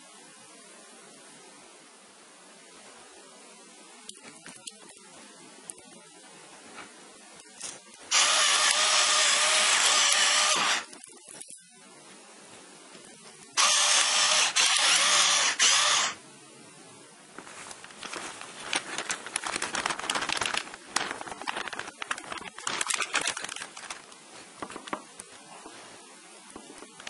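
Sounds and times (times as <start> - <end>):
pepper mill grinding: 8.1 - 10.8
paper bag crinkling: 17.4 - 25.3.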